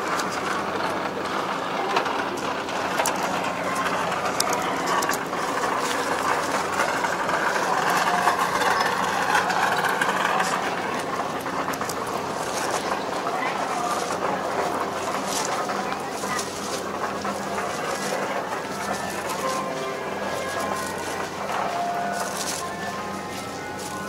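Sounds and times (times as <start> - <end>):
engine idling: 0.0 - 24.0.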